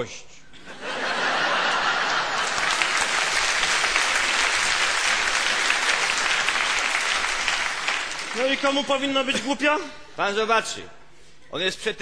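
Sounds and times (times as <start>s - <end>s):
audience applauding: 1.3s - 9.2s.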